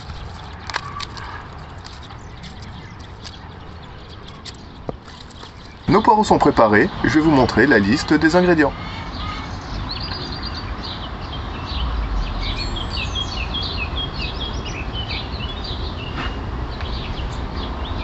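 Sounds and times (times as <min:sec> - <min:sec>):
birds chirping and singing: 0:00.0 - 0:18.0
steady low rumble: 0:00.0 - 0:18.0.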